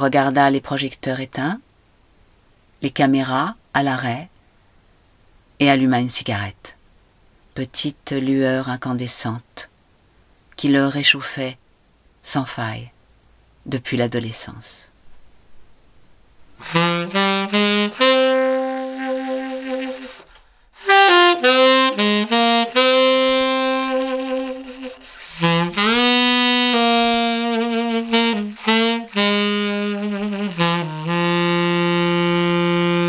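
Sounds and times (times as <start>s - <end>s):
solo saxophone melody: 16.6s - 33.0s.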